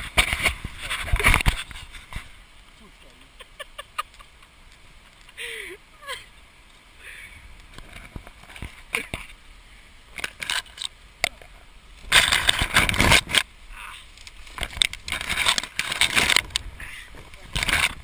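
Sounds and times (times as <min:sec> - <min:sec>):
branches snapping and rustling: 0:00.0 - 0:02.9, 0:10.1 - 0:18.0.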